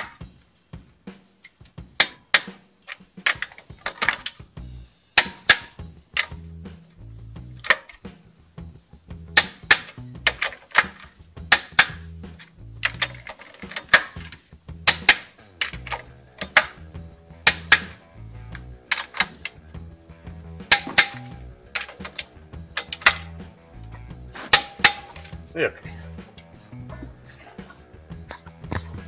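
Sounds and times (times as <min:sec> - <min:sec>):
sharp percussive hits: 0:01.8 - 0:04.5, 0:05.1 - 0:07.0, 0:09.2 - 0:18.2, 0:20.5 - 0:26.8
repeating bass notes: 0:04.5 - 0:07.7, 0:08.4 - 0:10.4, 0:11.2 - 0:13.2, 0:14.2 - 0:29.0.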